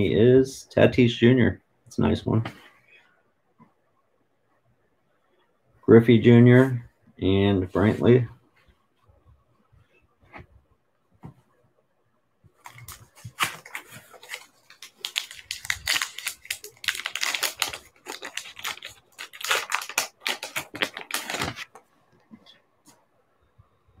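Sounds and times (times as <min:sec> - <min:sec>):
foil wrapper crinkling and tearing: 0:12.6 - 0:21.8.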